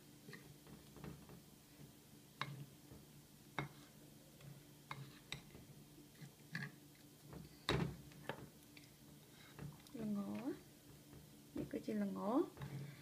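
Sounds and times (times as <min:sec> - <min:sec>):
metal spoon stirring flour: 0:03.6 - 0:06.8.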